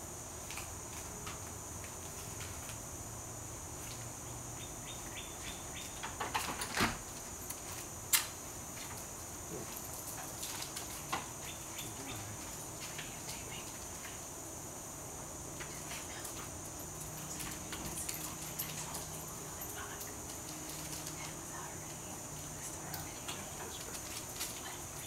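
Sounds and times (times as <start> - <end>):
insect drone: 0.0 - 25.0
bird chirping: 4.6 - 6.0, 11.4 - 12.4.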